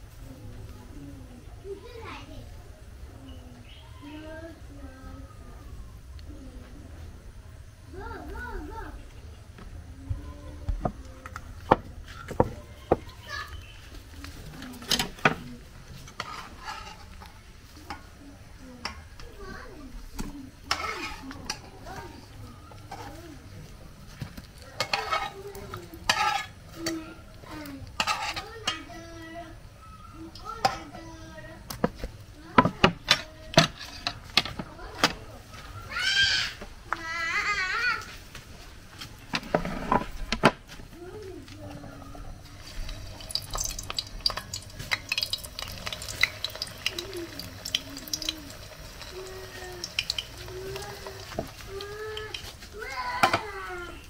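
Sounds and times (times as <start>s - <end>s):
oil sizzling: 11.3s - 37.0s, 41.7s - 54.0s
metal spatula scraping frying pan: 16.0s - 17.3s, 20.7s - 21.6s, 24.8s - 27.0s, 28.0s - 28.9s.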